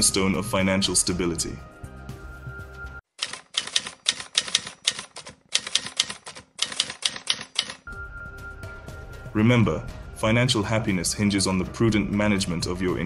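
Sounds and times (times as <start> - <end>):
typewriter keys clacking: 3.2 - 7.9.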